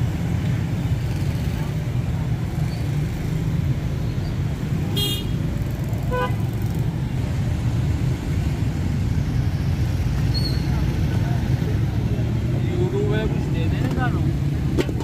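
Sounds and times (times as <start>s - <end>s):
street traffic rumble: 0.0s - 15.0s
vehicle horn toot: 5.0s - 5.4s.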